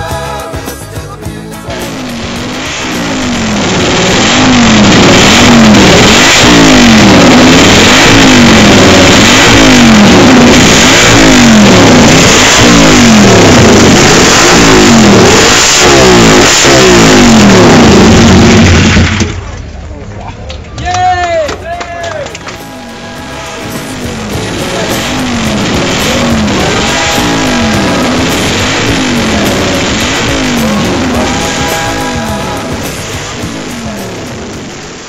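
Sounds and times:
racing engine revving: 0:00.0 - 0:19.8, 0:22.2 - 0:35.0.

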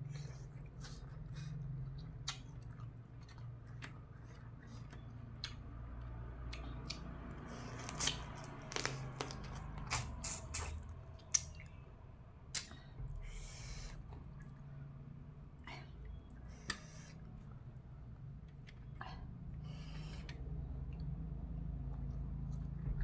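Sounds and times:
wet chewing with mouth clicks: 0:00.0 - 0:11.8.

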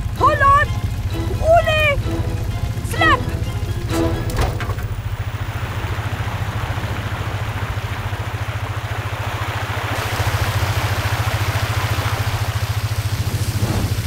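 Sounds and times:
water pouring hiss: 0:05.1 - 0:14.0.

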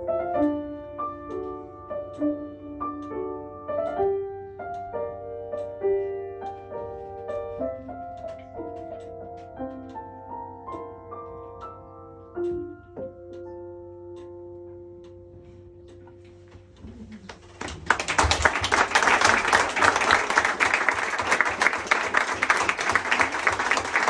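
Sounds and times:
upright piano playing: 0:00.0 - 0:16.5
audience applause: 0:17.3 - 0:24.0.

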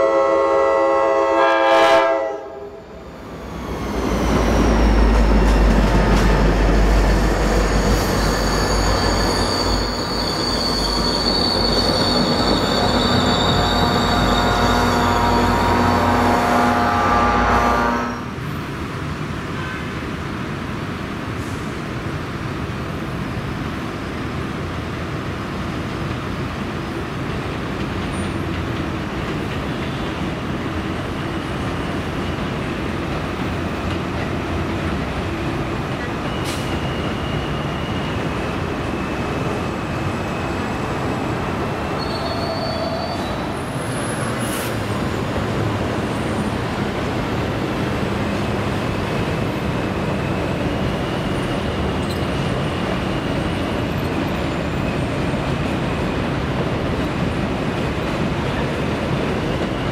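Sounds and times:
elevated train rumble: 0:00.0 - 0:59.9
road traffic: 0:00.0 - 0:59.9
high wheel squeal: 0:06.7 - 0:18.3, 0:36.1 - 0:45.3, 0:49.0 - 0:55.3.

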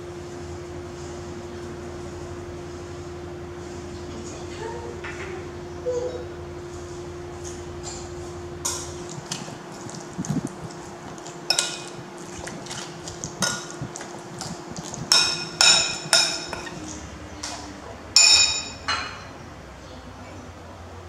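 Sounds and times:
loud ringing clinks: 0:18.2 - 0:19.4.

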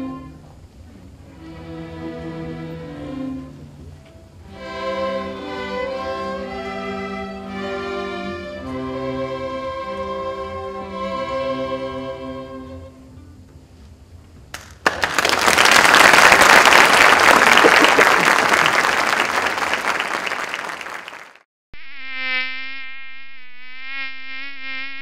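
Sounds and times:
audience applauding: 0:14.6 - 0:21.4
mosquito buzz sound effect: 0:21.8 - 0:25.0.

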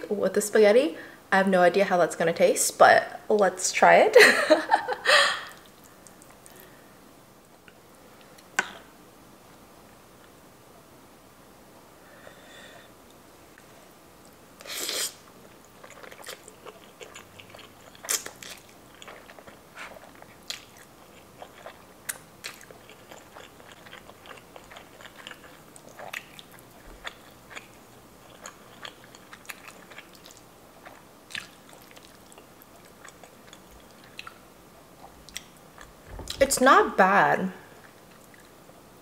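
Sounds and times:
chewing food: 0:13.6 - 0:36.4, 0:37.7 - 0:38.6.

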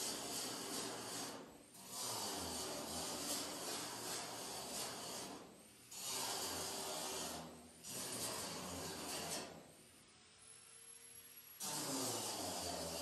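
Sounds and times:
angle grinder grinding metal: 0:11.6 - 0:13.0.

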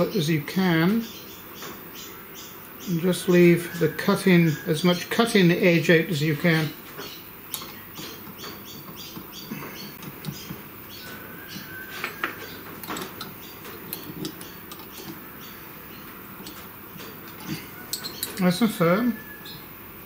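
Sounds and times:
metallic clicks and scrapes: 0:12.1 - 0:15.2, 0:16.4 - 0:18.6.

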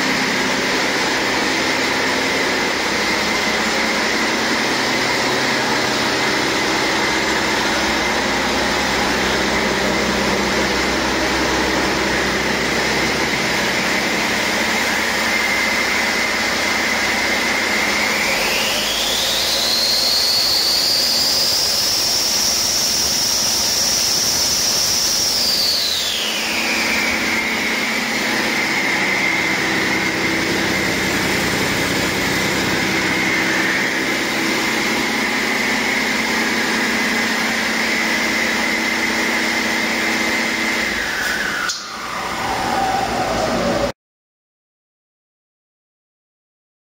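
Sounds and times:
diesel engine running: 0:00.0 - 0:43.9
high turbocharger whine: 0:00.0 - 0:44.0.

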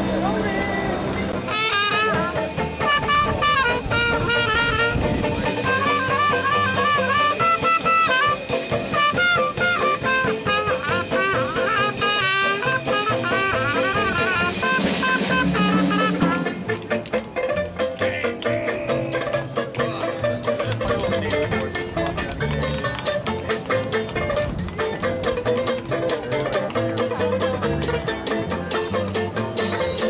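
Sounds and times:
banjo: 0:00.0 - 0:30.0
trumpet melody: 0:01.3 - 0:19.6
drum kit beat: 0:01.3 - 0:30.0.

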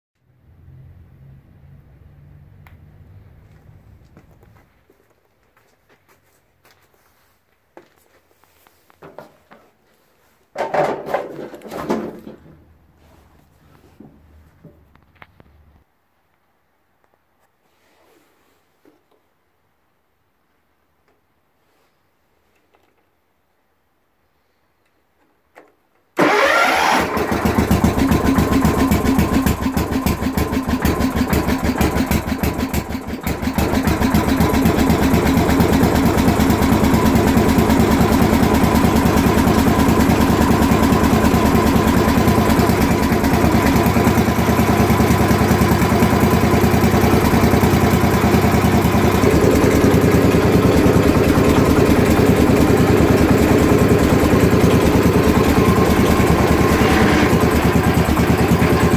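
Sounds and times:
tractor engine starting and running: 0:10.6 - 0:15.8, 0:26.2 - 0:58.9.

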